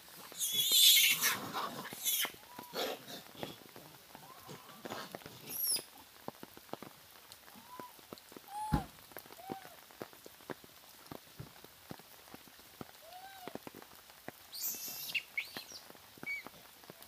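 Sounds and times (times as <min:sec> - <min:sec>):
clicks and patter on wet ground: 0:00.0 - 0:17.0
monkey calls: 0:00.3 - 0:03.0, 0:14.5 - 0:16.5.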